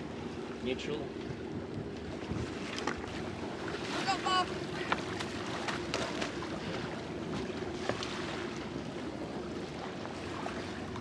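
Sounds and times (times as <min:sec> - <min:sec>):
water splashing along hull: 0:00.0 - 0:11.0
wind buffeting microphone: 0:01.2 - 0:08.4.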